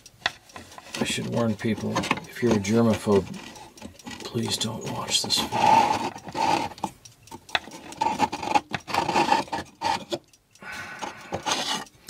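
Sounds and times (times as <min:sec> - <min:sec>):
wooden block scraping wood: 0:05.4 - 0:06.8, 0:08.0 - 0:10.2, 0:11.3 - 0:11.9.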